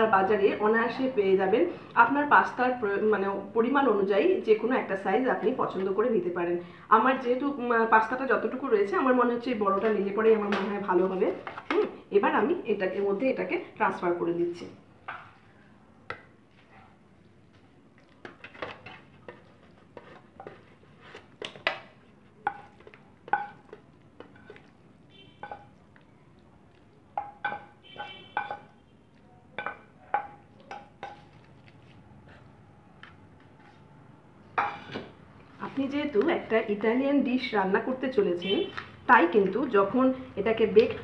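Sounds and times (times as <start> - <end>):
spatula scraping and knocking pan: 18.2 - 24.6, 27.2 - 28.8, 29.6 - 31.4.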